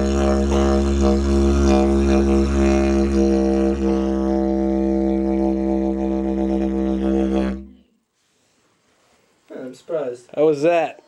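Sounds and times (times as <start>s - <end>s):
didgeridoo drone: 0.0s - 7.8s.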